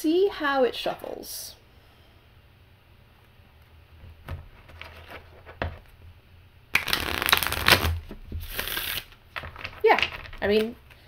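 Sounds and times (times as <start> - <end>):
card deck riffle: 6.8 - 9.1.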